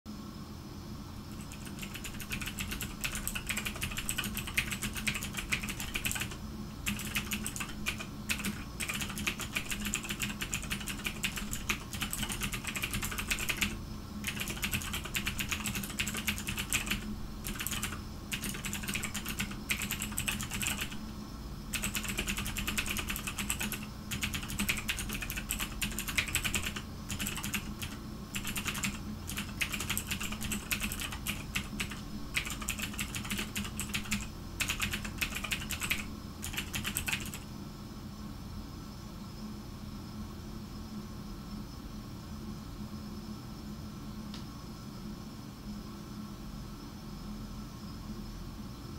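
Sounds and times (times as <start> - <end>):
steady low hum: 0.1 - 48.9
fast typing on a keyboard: 1.3 - 21.1, 21.7 - 37.4.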